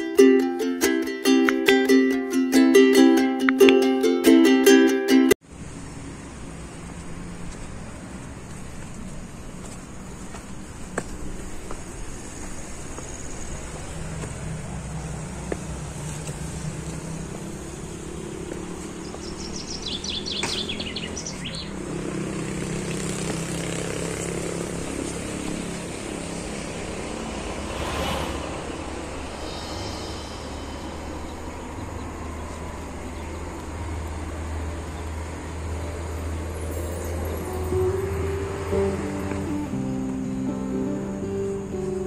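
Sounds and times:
traffic engine drone: 0:00.0 - 0:42.0
high bird trill: 0:19.0 - 0:21.8, 0:29.0 - 0:32.6
rushing noise: 0:25.2 - 0:33.2.

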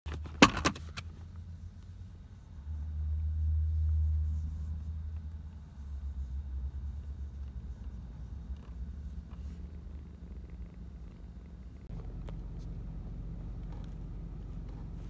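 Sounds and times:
kitten purring: 0:05.3 - 0:15.0.

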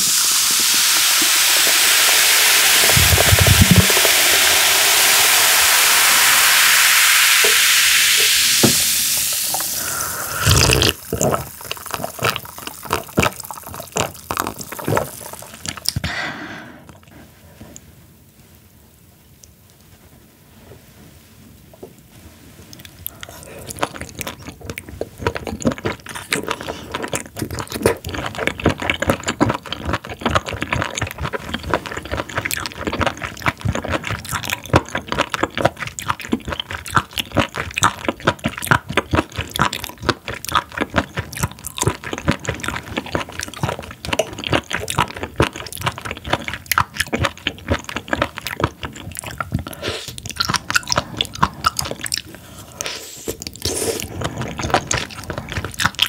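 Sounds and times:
crunchy rubbery chewing: 0:02.9 - 0:03.9, 0:10.4 - 0:16.0, 0:22.8 - 0:56.0.

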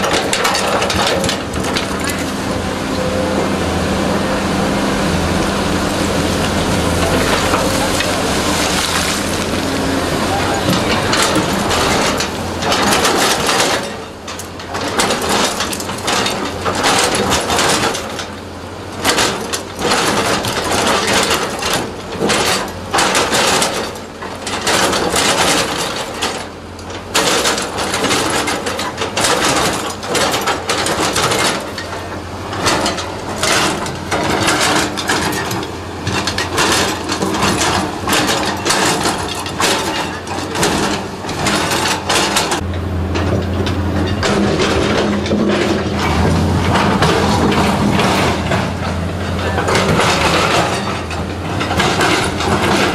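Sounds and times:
diesel engine hum: 0:00.0 - 0:19.1, 0:19.7 - 0:52.9
bucket scraping rock: 0:06.4 - 0:12.4.

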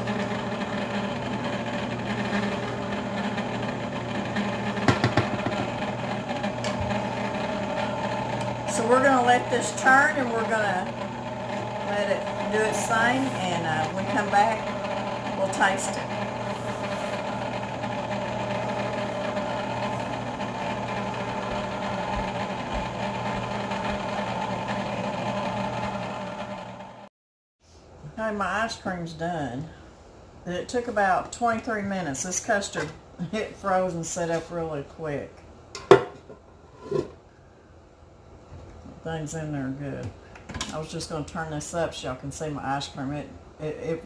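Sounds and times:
ice cream maker motor running: 0:00.0 - 0:27.1.

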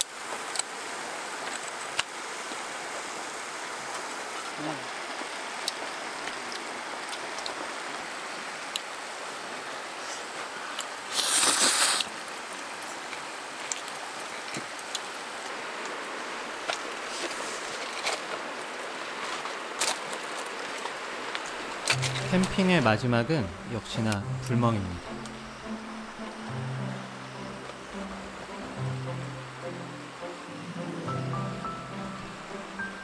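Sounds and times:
river rushing over stones: 0:00.0 - 0:33.0
loud hiss: 0:11.0 - 0:12.2, 0:21.6 - 0:33.0.

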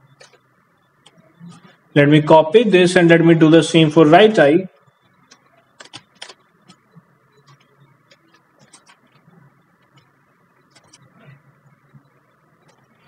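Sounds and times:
computer keyboard keys clicking: 0:05.3 - 0:06.8, 0:07.4 - 0:09.2.

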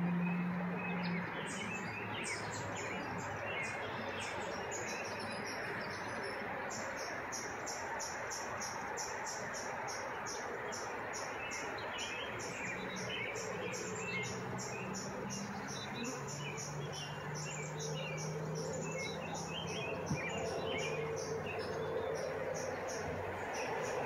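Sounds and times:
small birds chirping: 0:00.0 - 0:24.0
honeybees buzzing: 0:12.3 - 0:24.0.

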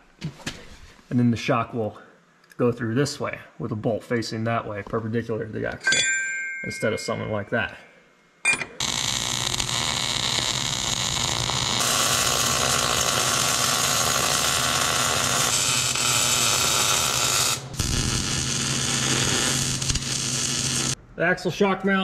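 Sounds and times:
welding arc crackling: 0:08.8 - 0:21.0.

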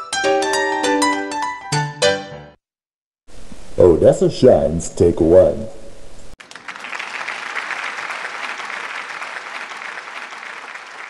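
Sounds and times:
crowd applause: 0:06.4 - 0:11.0.

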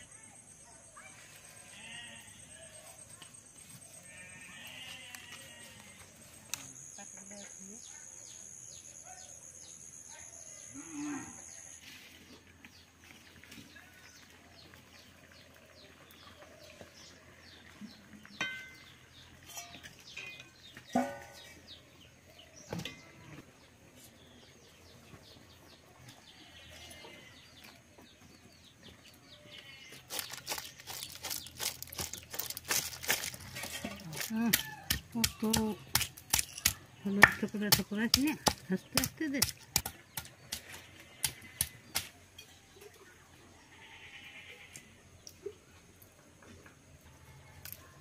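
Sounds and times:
snail shells clattering onto stone: 0:30.1 - 0:35.1.

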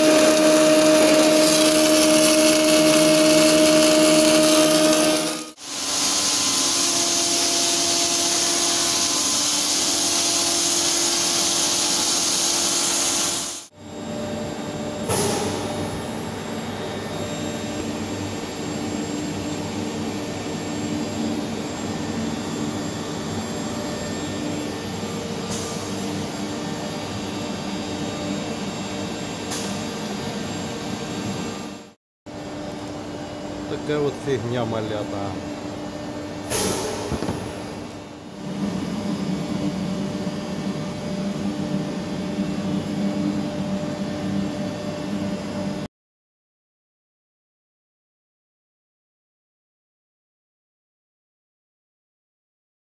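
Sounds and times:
loud steady welding hiss: 0:11.4 - 0:13.7
quieter machine drone: 0:13.7 - 0:45.9.

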